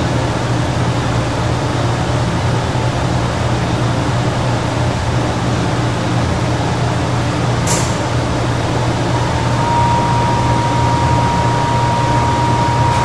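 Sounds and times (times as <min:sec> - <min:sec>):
thin steady whine: 0:08.1 - 0:13.0
low hum: 0:08.5 - 0:13.0.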